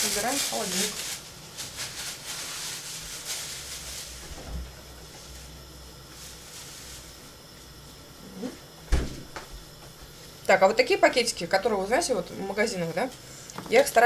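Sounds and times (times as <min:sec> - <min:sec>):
soft knocks in a fridge: 0:08.9 - 0:09.5.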